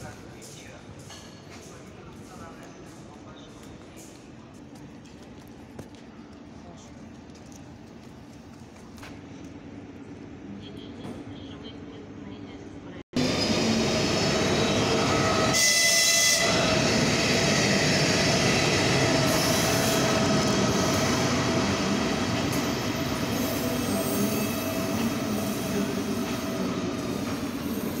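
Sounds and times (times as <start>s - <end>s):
train wheels rumbling on rails: 13.2s - 28.0s.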